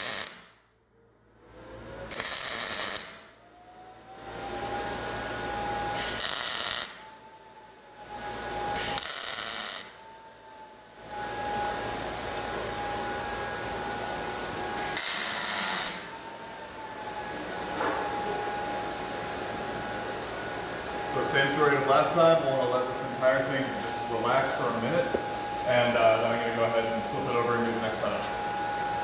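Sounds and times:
welder crackling bursts: 0.0 - 0.6, 2.1 - 3.3, 5.9 - 7.1, 8.8 - 10.0, 14.8 - 16.1
steady hum with thin whine: 0.0 - 29.0.

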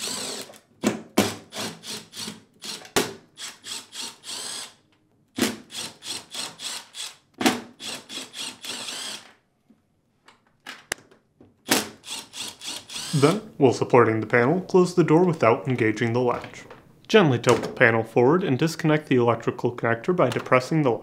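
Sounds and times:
drill clicks: 0.0 - 0.6, 1.6 - 4.8, 5.7 - 7.2, 7.8 - 9.4, 11.7 - 13.4
cordless drill motor whine: 8.4 - 9.2, 12.0 - 13.3.

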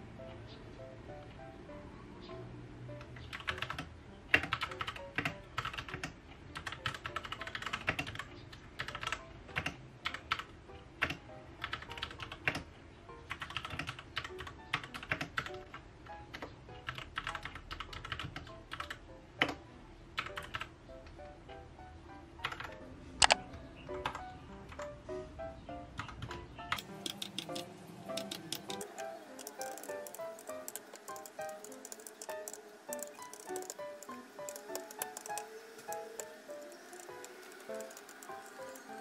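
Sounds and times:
mechanical keyboard key clicks: 22.4 - 23.4, 26.0 - 39.0.

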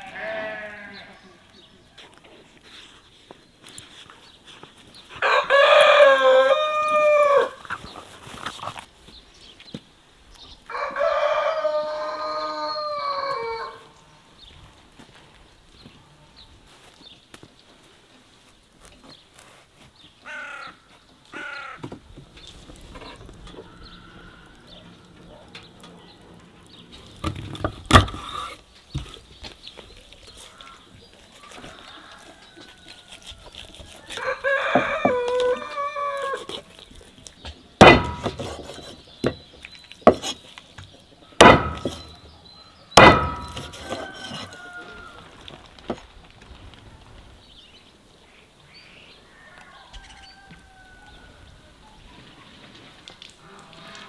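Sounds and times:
rooster crowing: 5.2 - 7.6, 10.7 - 13.9, 23.6 - 25.2, 31.4 - 36.5, 43.1 - 45.3, 49.3 - 51.5
knife chopping on wooden board: 37.8 - 39.4, 40.1 - 40.4, 41.4 - 42.1, 43.0 - 44.5.

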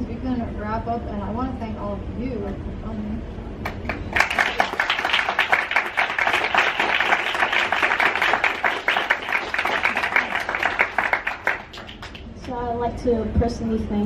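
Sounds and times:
audience applauding: 3.7 - 12.3.

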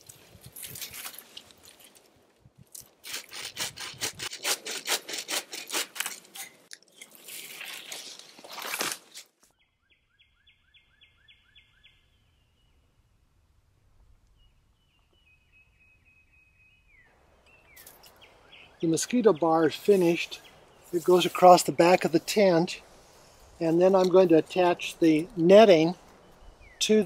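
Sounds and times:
bow saw cutting wood: 3.0 - 6.6.

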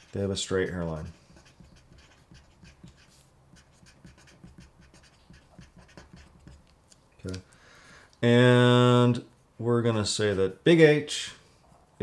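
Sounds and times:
marker scratching on paper: 0.0 - 6.7.

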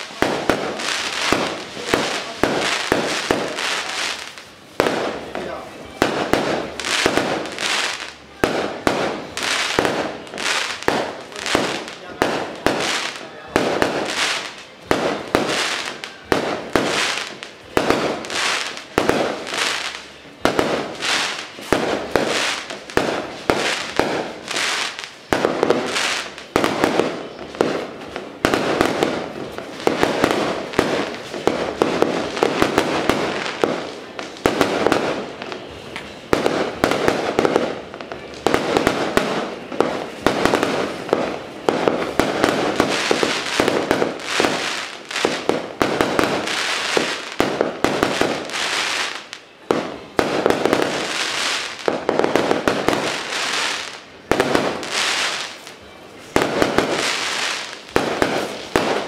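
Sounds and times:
firecrackers banging: 0.0 - 59.0.

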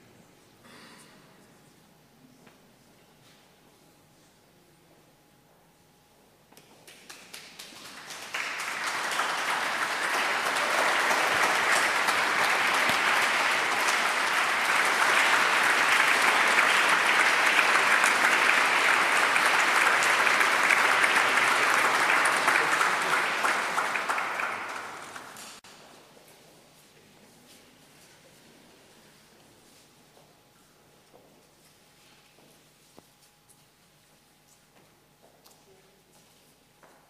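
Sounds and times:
audience applauding: 6.8 - 25.6.

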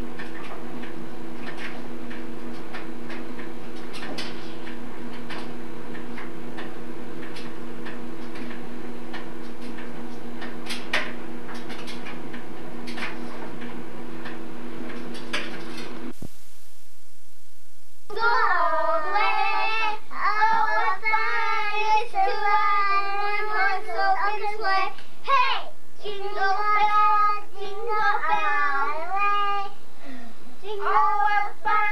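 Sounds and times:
steady low hum: 0.0 - 31.9
child singing: 18.1 - 29.8, 30.6 - 31.9.

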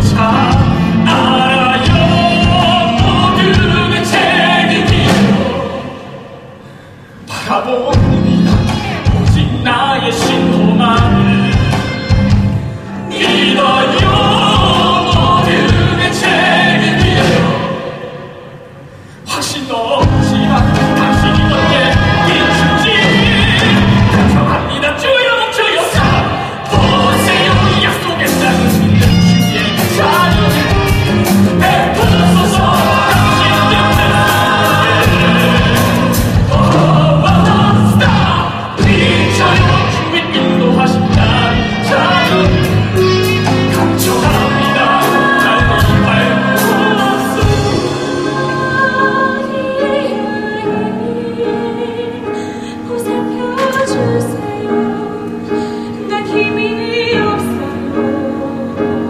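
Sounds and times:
steady drum beat: 0.0 - 5.6, 7.9 - 17.7, 20.0 - 24.7, 25.9 - 49.0
piano accompaniment: 0.0 - 6.6, 7.8 - 19.0, 19.8 - 59.0
ensemble singing: 0.0 - 59.0.

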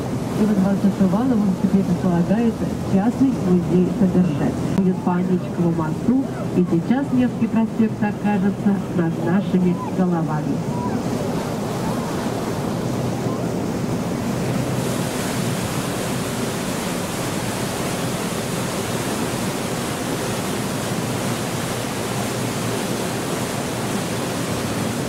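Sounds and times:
boat engine running: 0.0 - 25.0
rushing water wash: 0.0 - 25.0.

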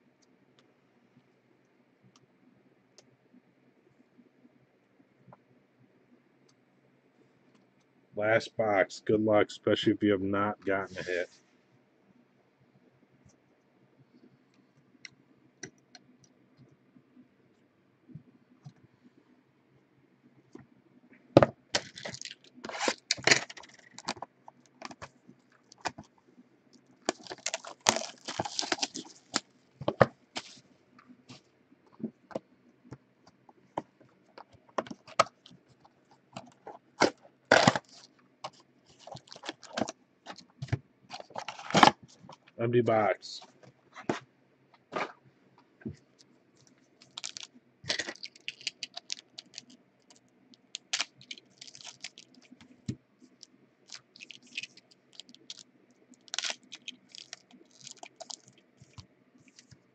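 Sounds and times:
shrink wrap crinkling and tearing: 21.7 - 26.1, 27.0 - 29.5, 34.8 - 42.0, 46.6 - 52.6, 53.3 - 59.8.

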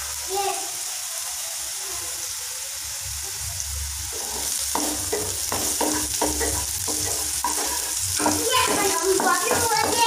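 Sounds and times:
onions sizzling in oil: 0.0 - 10.0
wooden spatula stirring in pan: 4.0 - 10.0.

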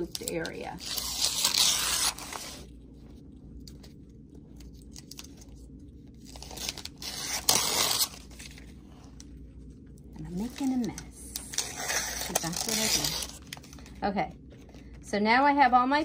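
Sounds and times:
paper liner tearing: 0.1 - 2.7, 6.2 - 8.6, 11.4 - 13.5
paper rustling: 4.6 - 9.3.

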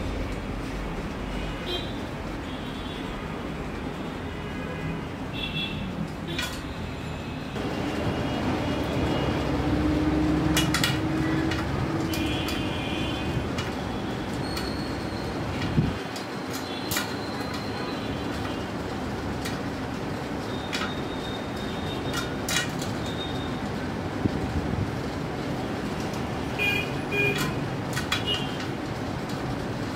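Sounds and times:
traffic-like background rumble: 0.0 - 29.9
metallic clicks and pings from spokes: 13.5 - 18.5, 20.6 - 23.5.

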